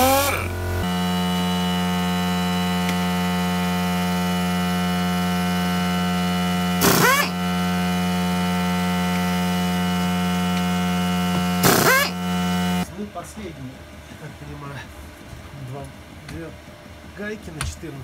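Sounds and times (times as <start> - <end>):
pneumatic impact gun whine: 0.0 - 12.8
steady electrical hum: 0.0 - 18.0.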